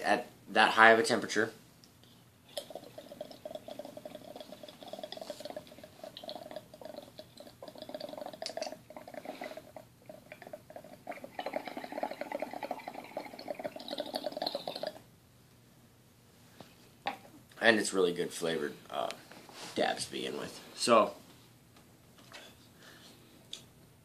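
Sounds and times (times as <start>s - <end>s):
water bubbling in glass pipe: 2.5s - 15.0s.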